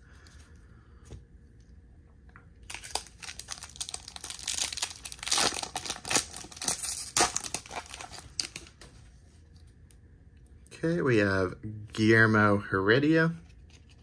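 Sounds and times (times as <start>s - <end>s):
foil wrapper crinkling and tearing: 2.6s - 8.9s.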